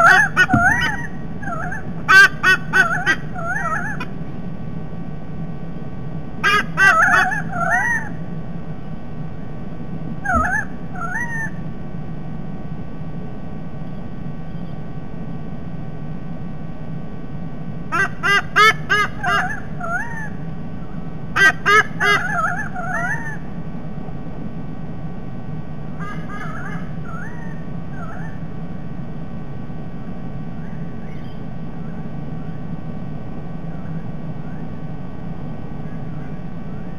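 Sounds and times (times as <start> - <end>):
birds whistling calls: 0.0 - 1.9, 10.2 - 11.6, 26.1 - 28.4, 30.6 - 32.1
eagle honking calls: 0.0 - 4.1, 6.4 - 8.1, 10.2 - 11.6, 17.9 - 20.3, 21.4 - 23.4
low background rumble: 0.0 - 36.9
steady low hum: 0.0 - 36.9.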